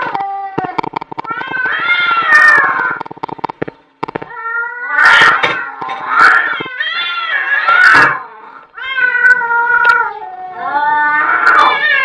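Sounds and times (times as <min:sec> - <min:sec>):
cats yowling: 0:01.2 - 0:03.0, 0:04.3 - 0:12.0.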